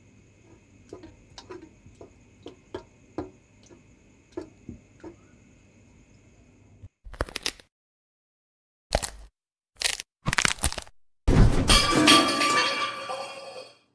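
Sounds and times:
faint steady hum: 0.0s - 6.9s
kitchen utensils tapping: 0.5s - 5.2s.

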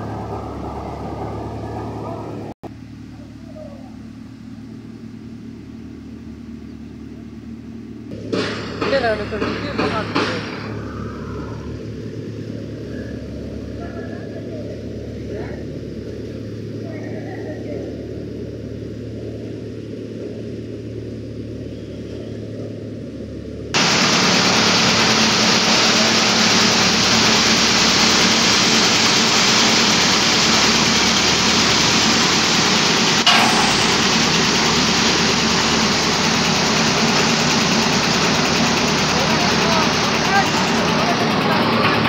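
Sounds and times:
thresher running with rushing clatter: 8.1s - 13.8s, 23.2s - 42.0s.

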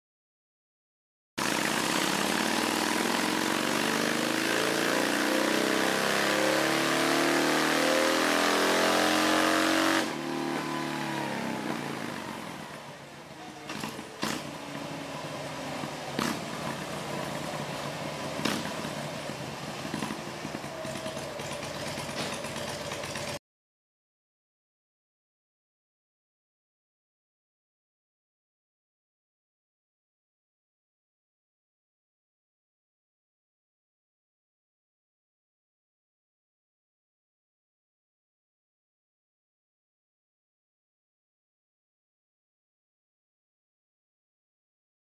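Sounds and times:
motorcycle engine revving: 1.4s - 23.4s.

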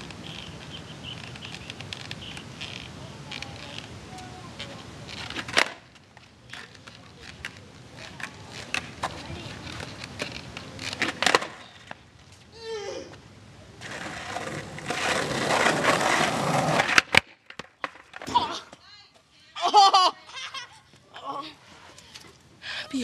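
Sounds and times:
skateboard clacks: 0.0s - 12.0s, 13.8s - 18.4s
skateboard wheels rolling on pavement: 0.0s - 23.0s.

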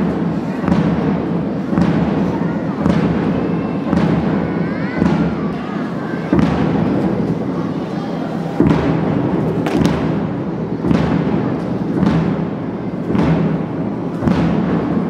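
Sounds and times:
continuous din: 0.0s - 15.0s
loud booming thumps: 8.6s - 15.0s.

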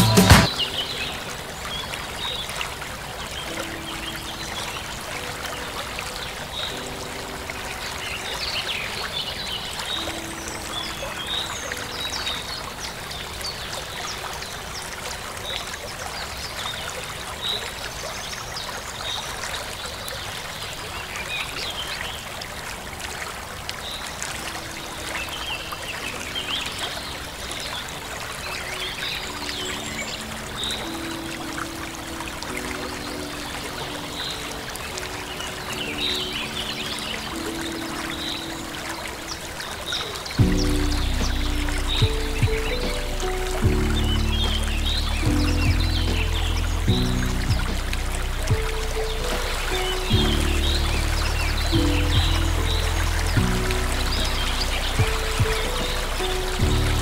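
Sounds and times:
stream water running: 0.0s - 57.0s.

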